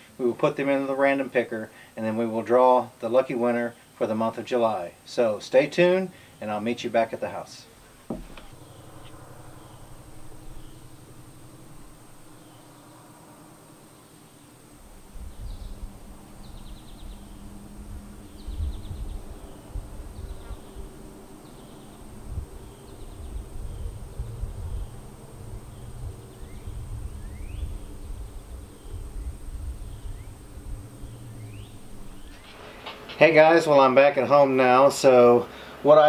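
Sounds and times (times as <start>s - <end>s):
rising calls: 7.6s - 36.0s
insect drone: 7.7s - 35.9s
low uneven rumble: 7.7s - 36.0s.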